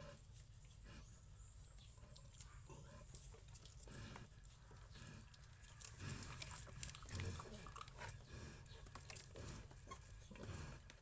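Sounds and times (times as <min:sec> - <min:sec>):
pigs grunting: 0:03.8 - 0:11.0.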